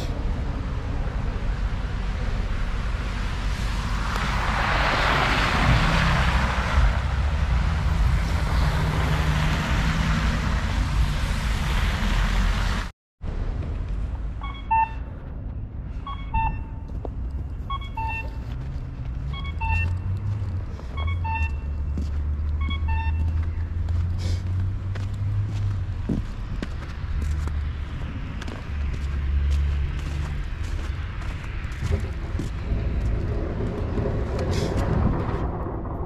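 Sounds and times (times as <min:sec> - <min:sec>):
low traffic rumble: 0:00.0 - 0:36.0
low vehicle rumble: 0:00.0 - 0:36.0
crossing signal cuckoo call: 0:17.7 - 0:18.4
wind buffeting microphone: 0:24.6 - 0:29.2, 0:29.9 - 0:36.0.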